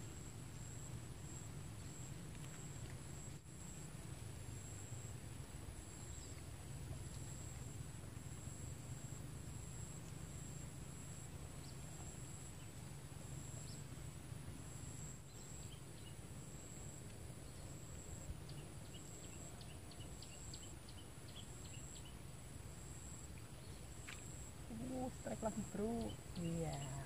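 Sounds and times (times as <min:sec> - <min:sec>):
insects droning: 0:00.0 - 0:27.0
low steady rumble: 0:00.0 - 0:27.0
small bird chirping: 0:24.7 - 0:27.0.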